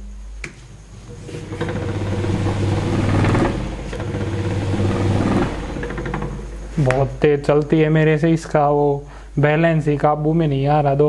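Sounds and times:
electric motor humming and rattling: 0.0 - 8.4.

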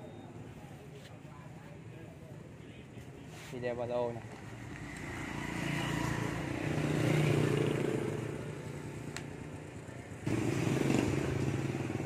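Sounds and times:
motorcycle engine running: 4.5 - 12.0.

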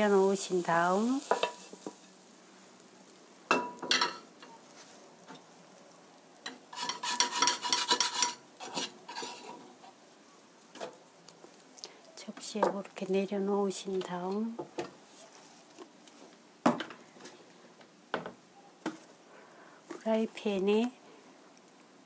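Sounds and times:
spatula scraping frying pan: 1.0 - 2.2, 6.5 - 9.9
cookware clatter: 3.5 - 4.3, 6.5 - 9.5.

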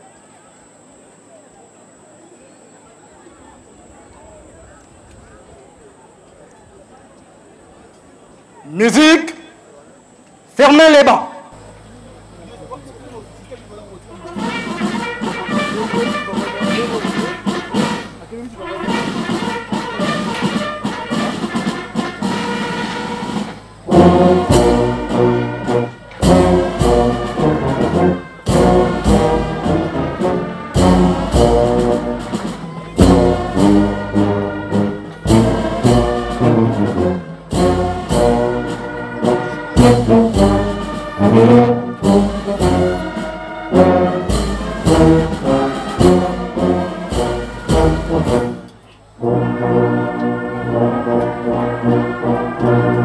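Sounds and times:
brass band playing: 14.1 - 53.0
bass drums beating: 23.3 - 48.7.

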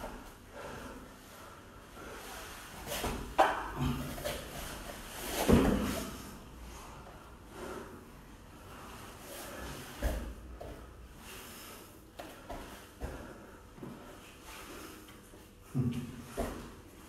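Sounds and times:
breathing: 0.0 - 3.2, 6.0 - 16.8
bodies scuffing on mats: 4.2 - 6.1.

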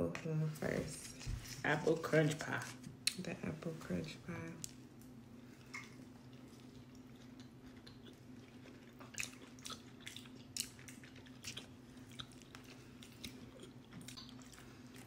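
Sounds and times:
steady low hum: 0.0 - 15.0
person chewing cookie: 5.5 - 15.0.

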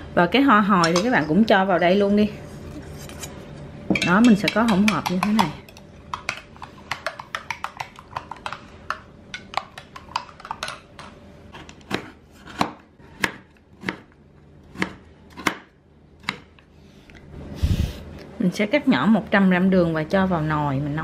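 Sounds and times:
knife chopping on wooden board: 11.6 - 14.1, 14.7 - 16.5.

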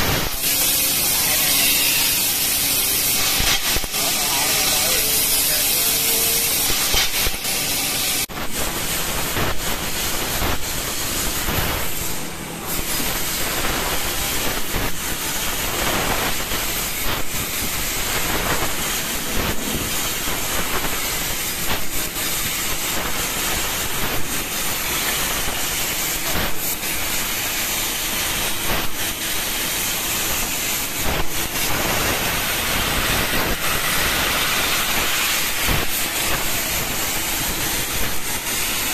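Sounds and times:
crackles: 0.0 - 12.0
laser cutter gas jet hiss: 0.0 - 38.9.

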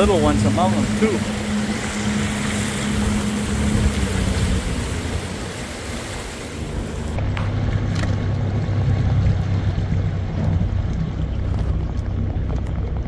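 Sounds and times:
wind and water hiss: 0.0 - 7.3
outboard motor hum: 0.0 - 13.0.

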